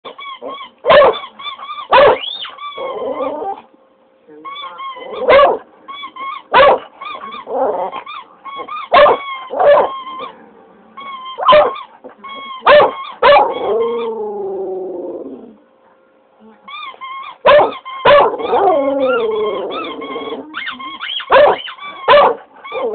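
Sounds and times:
rubber squeaky toy squeaking: 0.1 - 3.2, 4.4 - 5.3, 5.9 - 10.3, 11.0 - 14.1, 16.7 - 22.9
dog howling: 1.8 - 3.7, 12.6 - 15.6, 17.5 - 22.9.

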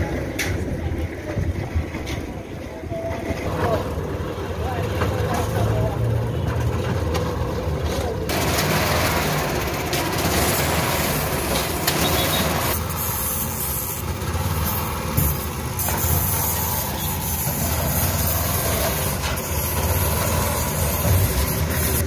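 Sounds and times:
small engine running: 8.3 - 22.0.

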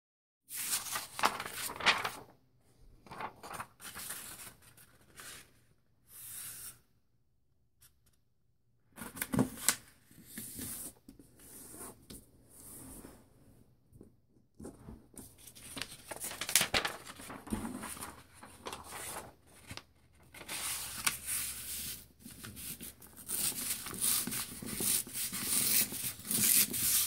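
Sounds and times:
paper rustling and crinkling: 0.5 - 2.3, 3.0 - 5.4, 14.6 - 27.0.

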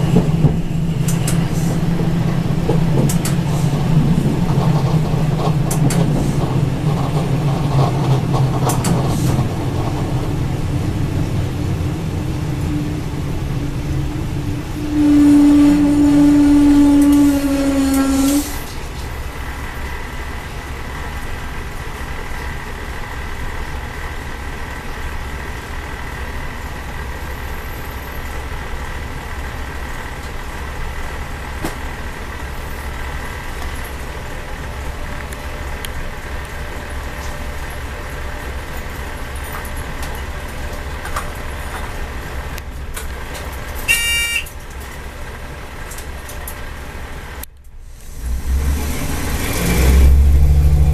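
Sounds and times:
railcar engine rumble: 0.0 - 50.9
loud steady tone: 11.9 - 18.6, 43.9 - 44.5
brief high beep: 43.9 - 44.4.

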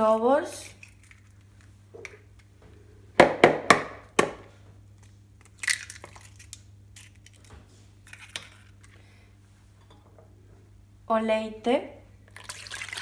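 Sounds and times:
eggshell crackling: 5.4 - 7.4.

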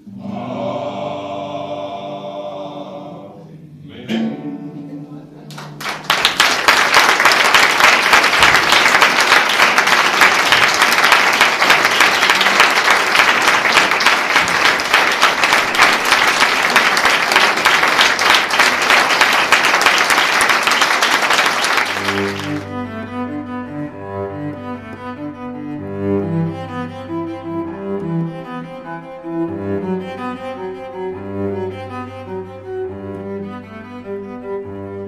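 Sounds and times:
music with low strings: 0.0 - 5.8, 22.0 - 35.0
audience applauding: 5.5 - 22.8.

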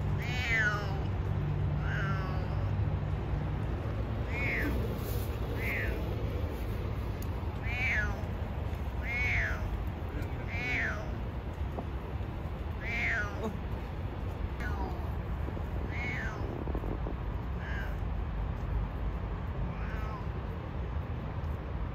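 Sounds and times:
steady low rumble: 0.0 - 21.9
cat meowing: 0.2 - 1.1, 1.8 - 2.7, 4.2 - 6.7, 7.6 - 8.4, 9.0 - 11.2, 12.7 - 13.7, 15.8 - 16.8, 17.5 - 18.0, 19.7 - 20.4.

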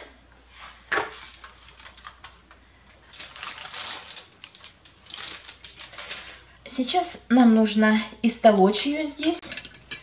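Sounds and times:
aluminium foil crinkling: 1.1 - 6.6.

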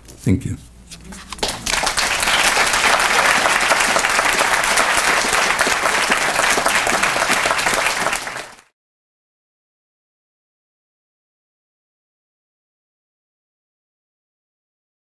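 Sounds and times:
audience applauding: 1.3 - 8.7.

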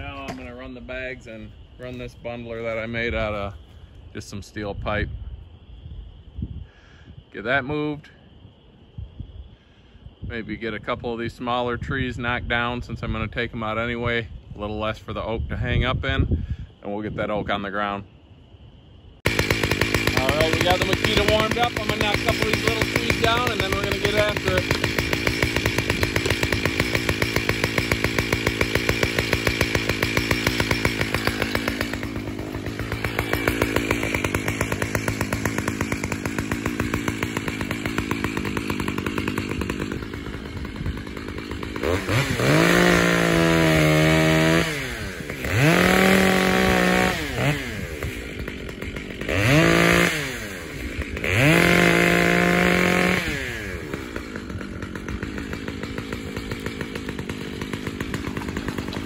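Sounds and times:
chainsaw idling and revving: 19.2 - 59.0.

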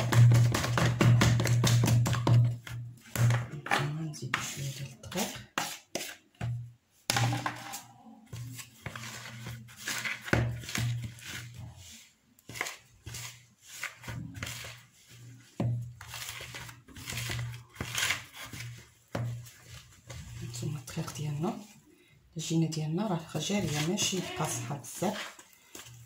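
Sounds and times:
whisk scraping plastic bowl: 7.7 - 21.8, 23.3 - 26.0.

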